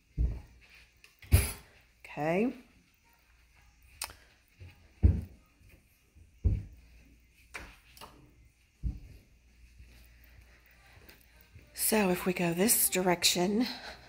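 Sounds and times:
heavy footsteps on wooden floor: 0.0 - 0.7, 4.6 - 7.1, 8.6 - 10.0.

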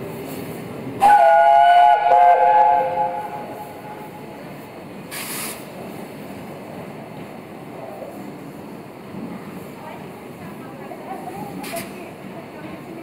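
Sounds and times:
steam locomotive whistle blasts: 1.0 - 4.1
steam hissing: 5.1 - 5.8.

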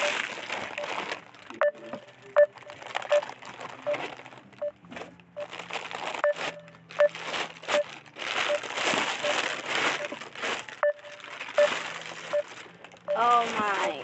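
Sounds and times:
phone call tone beeps: 0.0 - 0.2, 1.6 - 3.3, 10.8 - 12.5, 13.1 - 13.3
plastic wrapping crinkling: 0.0 - 14.0.

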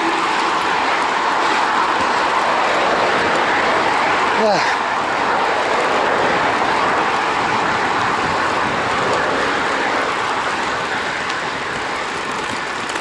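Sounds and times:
bike tyres on paved path: 0.0 - 13.0
passing traffic: 0.0 - 13.0
wind: 0.0 - 13.0.

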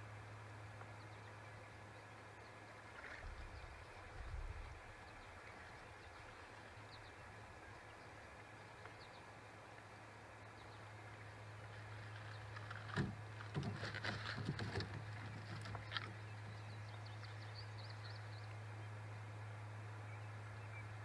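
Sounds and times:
small birds chirping: 15.0 - 19.0.

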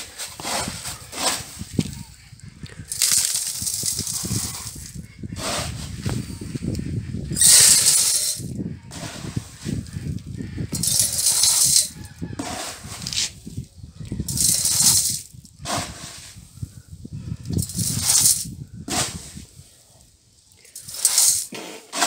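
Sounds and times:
scooping and handling noise: 0.0 - 2.1, 2.7 - 6.4, 7.4 - 16.4, 17.4 - 19.7, 20.6 - 22.0
grain pouring onto metal: 2.9 - 4.8, 7.4 - 8.4, 10.8 - 11.9, 14.3 - 16.3, 17.6 - 19.2, 20.8 - 22.0.

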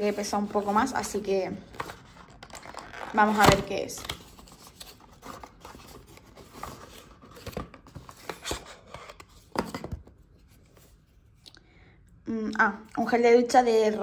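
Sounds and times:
cardboard rustling and scraping: 0.0 - 11.1.

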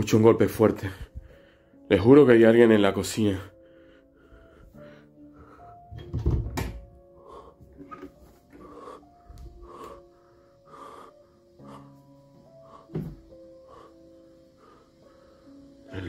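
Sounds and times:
background music with held notes: 0.0 - 16.0
person breathing heavily: 1.0 - 1.8, 3.5 - 5.9, 7.0 - 15.9
loud thump with sharp knock: 12.9 - 13.2.

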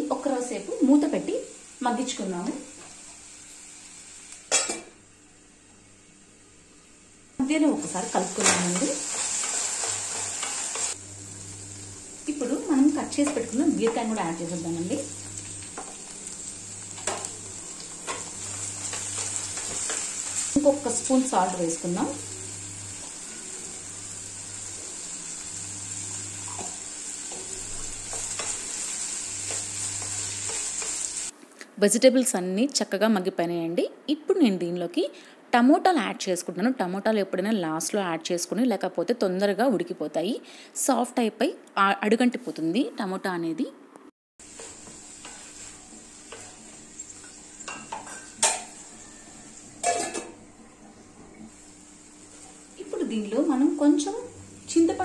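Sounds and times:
vegetables sizzling in oil: 0.0 - 31.4, 44.4 - 55.0
spatula scraping and tapping pan: 44.5 - 48.8
pan clanking on metal: 49.8 - 50.4.

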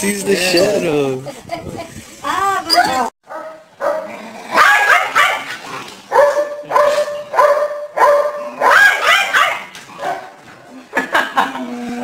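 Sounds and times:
dog barking: 3.3 - 5.5, 6.1 - 10.4.

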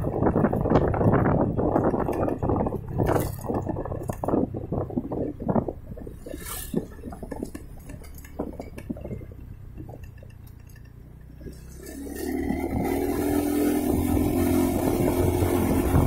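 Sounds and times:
motorcycle engine: 0.0 - 16.0
clinks and rattles: 6.3 - 11.9.

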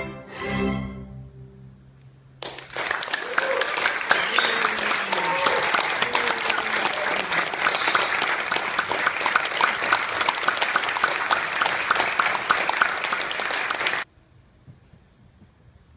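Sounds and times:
audience applauding: 2.4 - 14.1.

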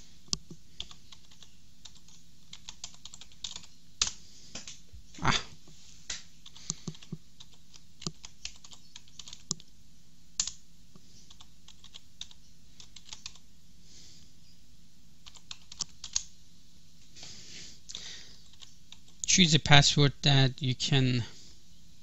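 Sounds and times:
keyboard typing: 0.2 - 4.8, 6.4 - 9.7, 11.3 - 13.4, 15.2 - 16.3, 18.4 - 19.3.

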